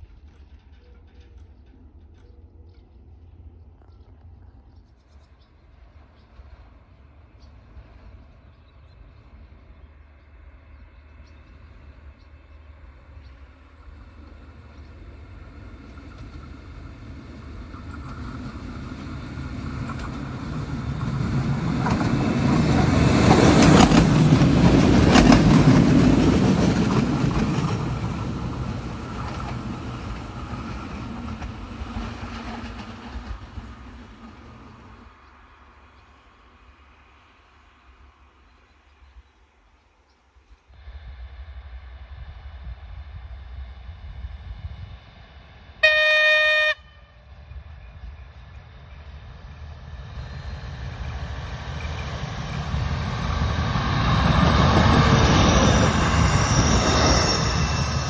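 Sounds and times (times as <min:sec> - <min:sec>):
wheels clacking over rail joints: 0:00.0 - 0:02.9, 0:15.2 - 0:34.6, 0:47.4 - 0:58.0
diesel railcar passing: 0:00.0 - 0:58.0.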